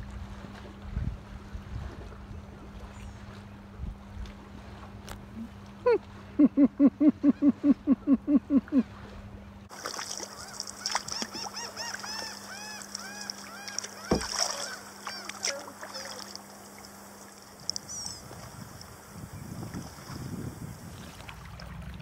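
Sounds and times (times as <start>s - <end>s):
small birds chirping: 17.5s - 18.3s.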